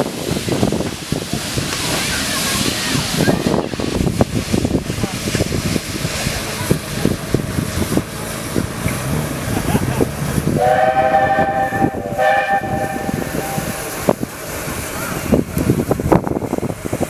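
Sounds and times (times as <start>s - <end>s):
steam locomotive whistle: 10.6s - 13.9s.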